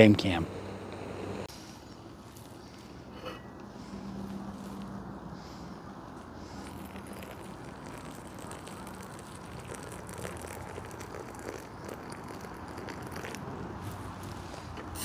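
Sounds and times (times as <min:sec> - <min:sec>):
water pouring onto oats: 0:06.5 - 0:14.1.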